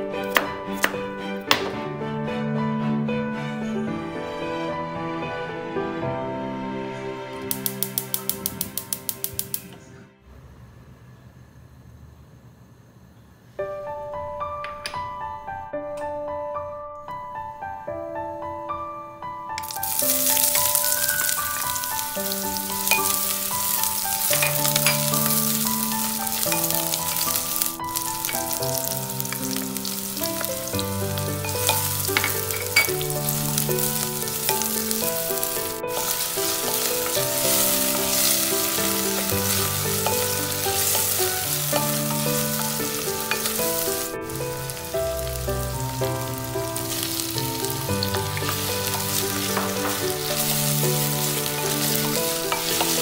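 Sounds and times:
soft background music: 0.0 - 10.3, 13.6 - 53.0
onion sizzling in hot oil: 7.5 - 9.6, 19.6 - 53.0.

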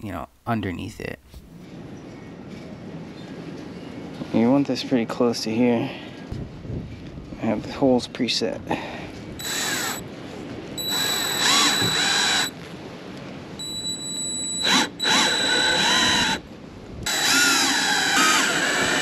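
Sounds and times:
power drill driving screws: 9.4 - 10.0, 10.8 - 12.6, 13.6 - 16.4, 17.1 - 19.0.

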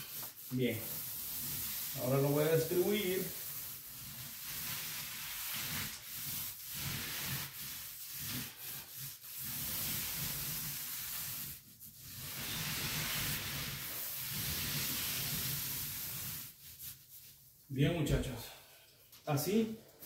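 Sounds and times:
paint roller rubbing on wall: 0.0 - 17.7.

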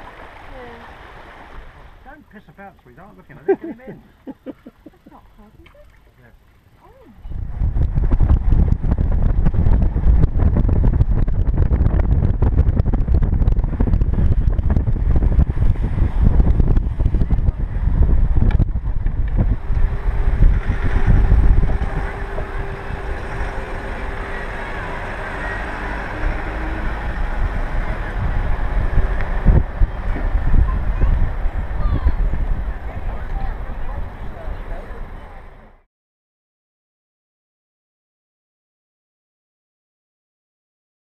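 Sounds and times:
road noise: 0.0 - 35.9
wind buffeting microphone: 6.9 - 35.6.

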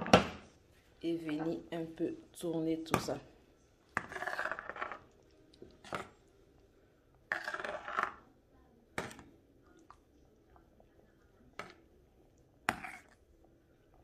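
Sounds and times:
spoon scraping pot: 3.9 - 6.2, 7.2 - 8.3, 12.6 - 13.3
spoon stirring sauce in pot: 3.9 - 14.0.

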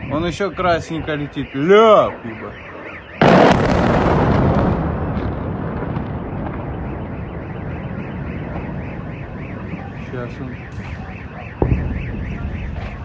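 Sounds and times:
car alarm wailing: 0.0 - 13.0
explosion boom and rumble: 3.2 - 13.0.

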